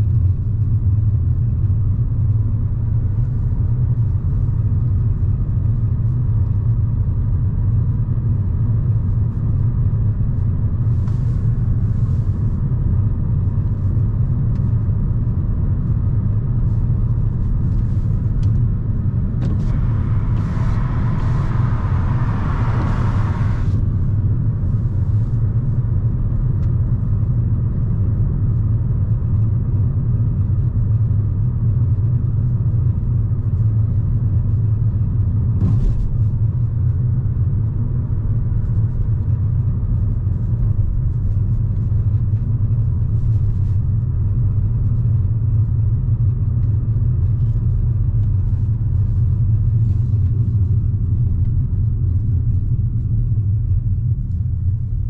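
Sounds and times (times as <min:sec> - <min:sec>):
car engine running: 0:15.8 - 0:28.1.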